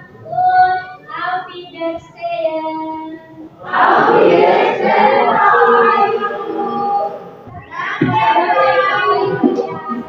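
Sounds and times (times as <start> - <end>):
students chanting in unison: 3.6 - 9.8.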